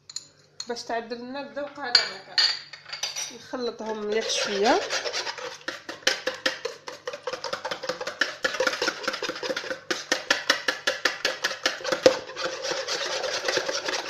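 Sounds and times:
whisk beating eggs in bowl: 0:03.6 - 0:14.0.

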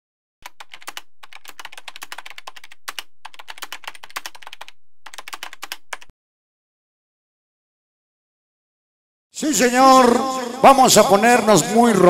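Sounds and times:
rapid keyboard typing clicks: 0:00.4 - 0:06.1.

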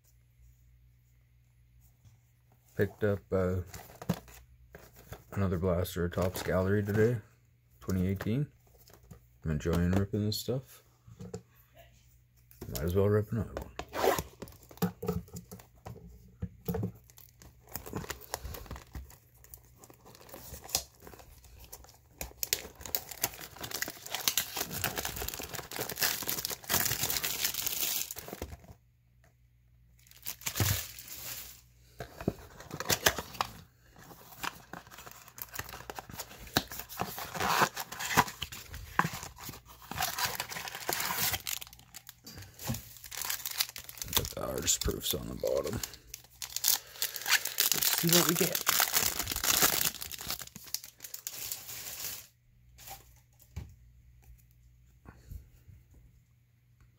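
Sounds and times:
card packs rustling: 0:02.7 - 0:07.2, 0:16.8 - 0:28.8, 0:30.0 - 0:53.5
shrink wrap crinkling and tearing: 0:16.9 - 0:28.7, 0:30.0 - 0:53.2
cardboard box opening: 0:34.1 - 0:42.0.

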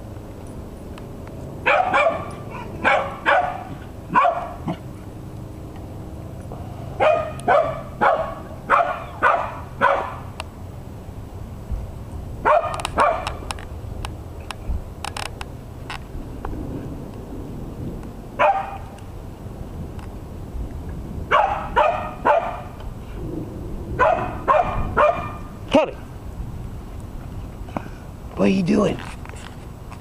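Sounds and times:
dog barking: 0:01.6 - 0:04.8, 0:07.0 - 0:10.3, 0:12.4 - 0:13.4, 0:18.4 - 0:18.9, 0:21.3 - 0:22.8, 0:24.0 - 0:25.5.

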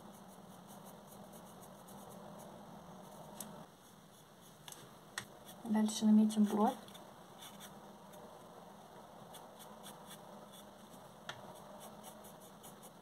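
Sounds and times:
pencil scratching on paper: 0:00.0 - 0:04.5, 0:07.4 - 0:07.8, 0:09.3 - 0:13.0.

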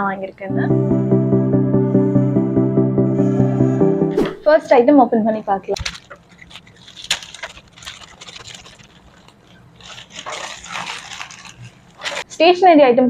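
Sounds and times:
plastic bag rustling and crinkling: 0:05.8 - 0:12.5.

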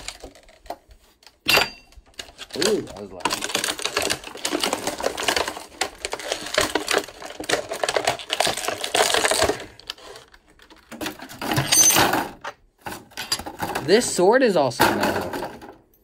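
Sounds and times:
toy parts clattering and clicking: 0:00.0 - 0:14.2.

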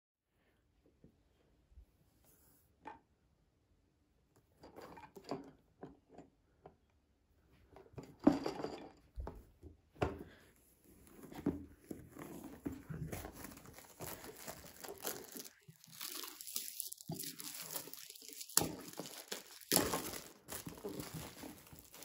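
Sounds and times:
shrink-wrap crinkling and tearing: 0:12.9 - 0:22.0.

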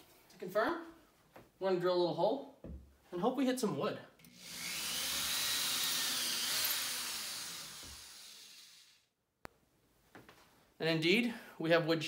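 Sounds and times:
electric drill boring into drywall: 0:04.2 - 0:09.1.

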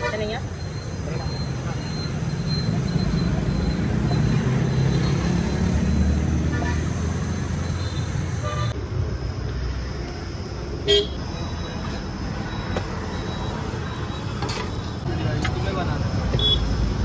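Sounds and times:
road vehicle engines rumbling: 0:00.0 - 0:17.0
car horn beep: 0:07.7 - 0:08.8, 0:10.8 - 0:11.8, 0:16.3 - 0:16.7.

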